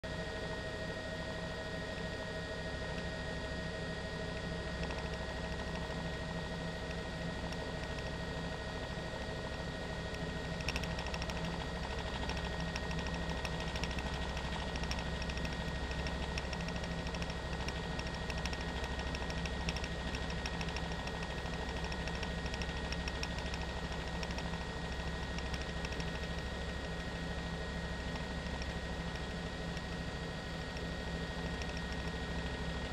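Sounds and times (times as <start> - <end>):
helicopter engine and rotor drone: 0.0 - 32.9
faint rapid ticking: 9.4 - 27.0.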